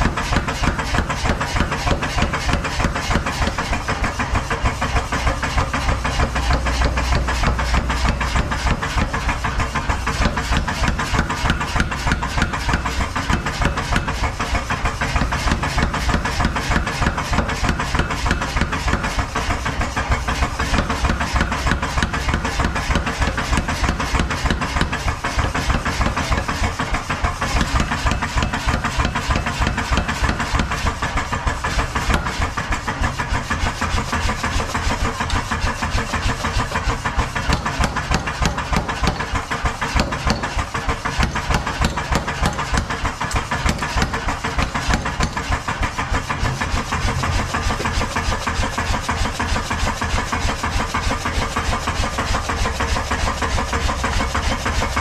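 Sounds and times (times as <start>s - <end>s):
power hammer pounding metal: 0.0s - 55.0s.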